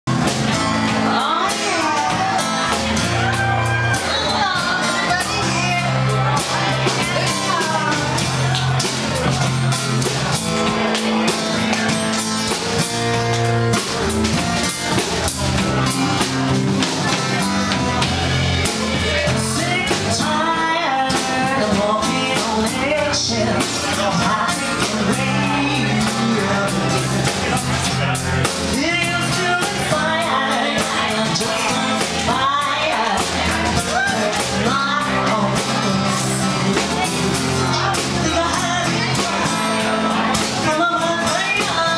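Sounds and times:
drum kit: 0.0 - 41.9
acoustic guitar: 0.1 - 41.9
electric guitar: 0.1 - 41.9
woman singing into a microphone: 0.9 - 8.2, 19.0 - 27.4, 28.7 - 41.9.

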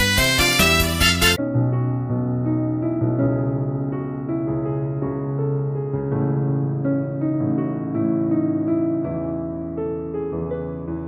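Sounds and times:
upbeat music with steady beat: 0.0 - 1.4
soft keyboard tune: 0.0 - 11.0.

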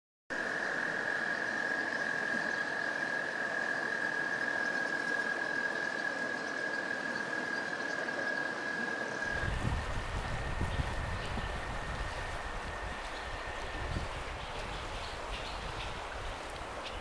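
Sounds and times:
constant hiss: 0.4 - 17.0.

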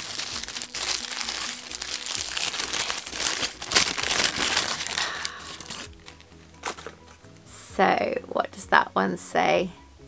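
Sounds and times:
tissue paper crinkling: 0.0 - 7.2
soft background music: 0.0 - 10.0.

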